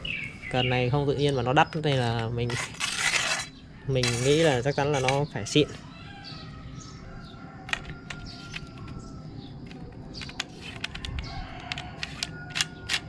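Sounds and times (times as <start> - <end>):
faint birds calling: 0.0 - 13.0
metal cap clicking and scraping: 1.3 - 5.3, 7.7 - 9.0, 9.6 - 13.0.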